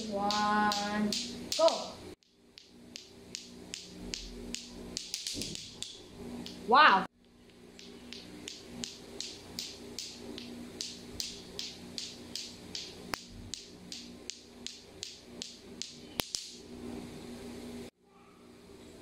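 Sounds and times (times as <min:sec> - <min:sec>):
plastic clacker balls knocking: 0:02.5 - 0:06.6, 0:07.2 - 0:16.5.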